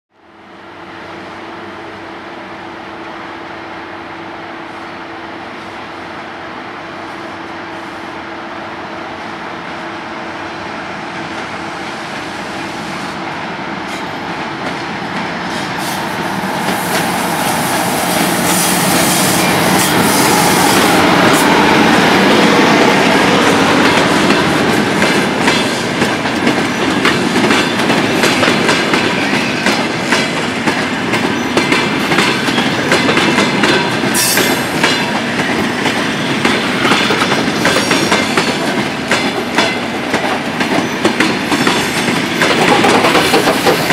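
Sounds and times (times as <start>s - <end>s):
electric locomotive passing: 0.2s - 43.9s
train wheels clacking over rail joints: 22.8s - 43.9s.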